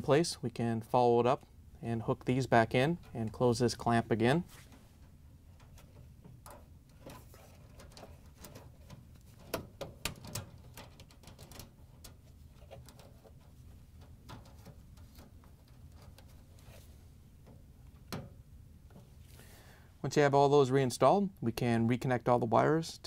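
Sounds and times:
rustling of gloves and wires: 0:02.6 - 0:19.8.

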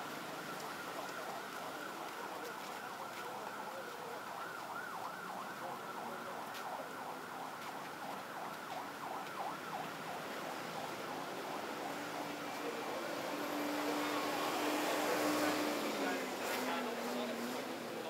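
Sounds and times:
street traffic noise: 0:00.0 - 0:18.0
electronic siren wailing: 0:02.9 - 0:15.6.

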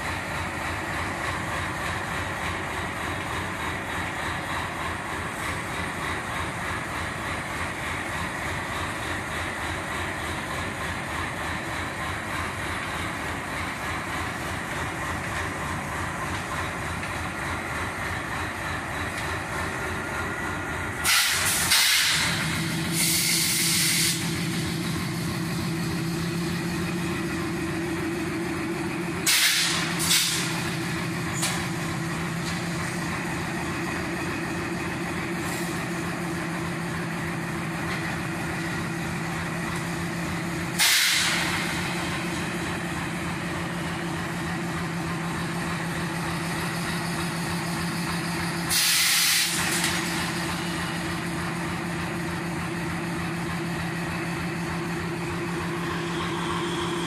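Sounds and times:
engine drone: 0:00.0 - 0:57.0
train rumble: 0:00.0 - 0:57.0
air hissing bursts: 0:21.0 - 0:24.8, 0:29.2 - 0:30.8, 0:40.7 - 0:41.9, 0:48.7 - 0:49.9.

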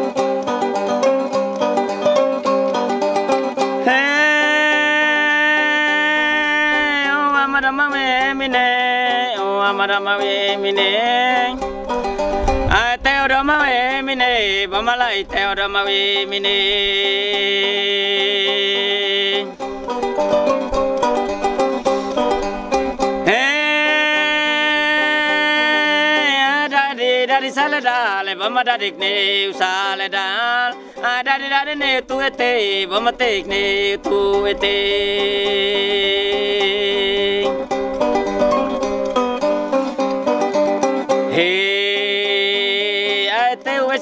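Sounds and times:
plucked zither notes: 0:00.0 - 0:43.4
man singing a long note: 0:23.2 - 0:38.8.

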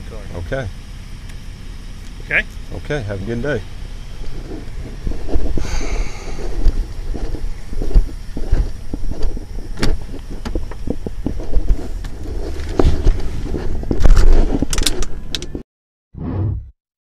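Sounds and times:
wind rumble on microphone: 0:03.5 - 0:15.6
microphone handling noise: 0:04.0 - 0:15.6
knocks scrapes and clicks: 0:04.1 - 0:15.6.

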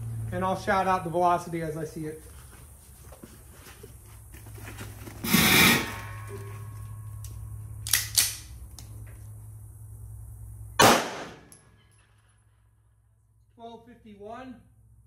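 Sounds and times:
pistol shot with echo: 0:10.8 - 0:11.6.

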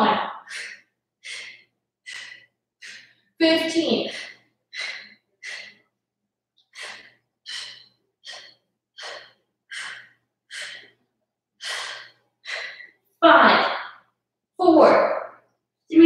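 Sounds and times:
woman breathing hard: 0:00.0 - 0:06.0, 0:06.6 - 0:13.0.

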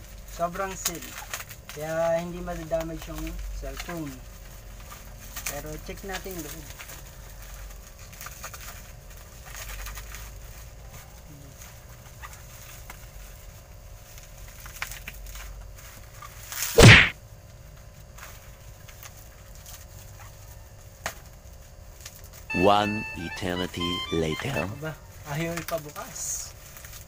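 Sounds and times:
plastic wrapping rustling: 0:00.2 - 0:16.8, 0:25.2 - 0:27.0.

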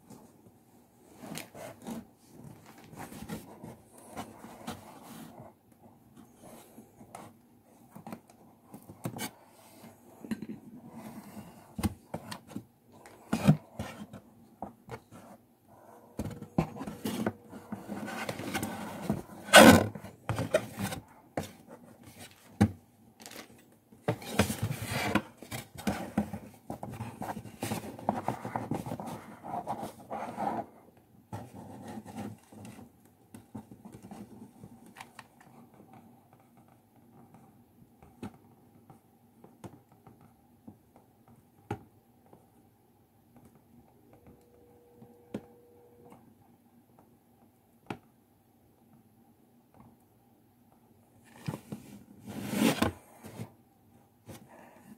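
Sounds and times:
card panels rustling and crackling: 0:16.2 - 0:30.0.

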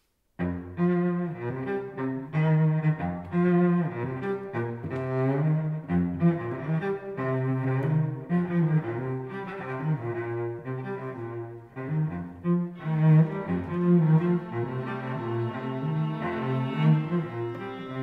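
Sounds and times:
bowed cello fiddle-style tune: 0:00.4 - 0:18.0.

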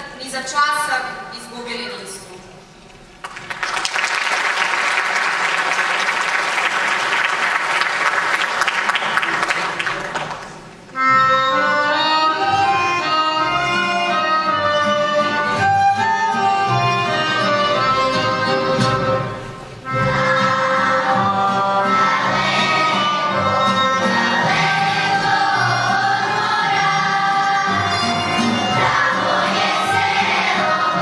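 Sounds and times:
audience applauding: 0:03.2 - 0:10.9
folk band with accordion and violin: 0:10.8 - 0:31.0.

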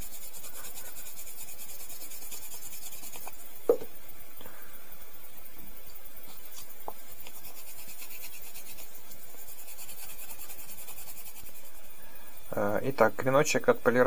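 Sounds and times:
knife blade rubbing on felt wheel: 0:00.0 - 0:03.5, 0:06.5 - 0:11.8.

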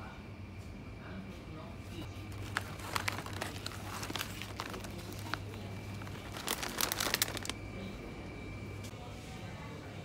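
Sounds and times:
plastic bag crinkling: 0:02.1 - 0:07.7.

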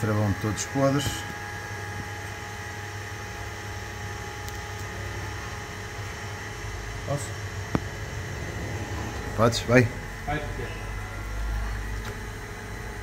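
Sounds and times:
mechanical hum: 0:00.0 - 0:13.0
low rumble: 0:07.6 - 0:11.9.

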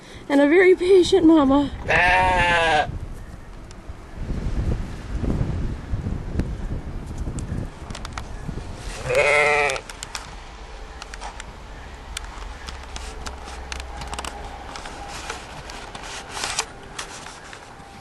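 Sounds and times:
sheep bleating: 0:01.8 - 0:02.9, 0:09.0 - 0:09.8
rustles in straw: 0:08.5 - 0:09.4, 0:12.4 - 0:18.0.

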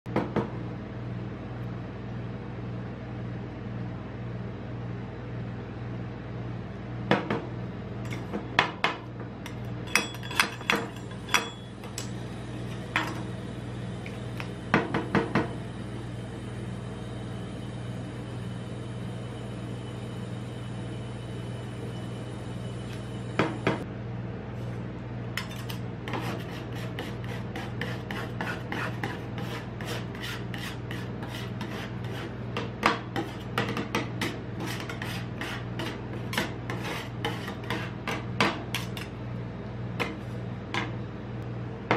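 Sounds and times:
machine cold plate humming: 0:00.2 - 0:41.9
metal spatula scraping plate: 0:25.4 - 0:32.4, 0:33.1 - 0:39.1.

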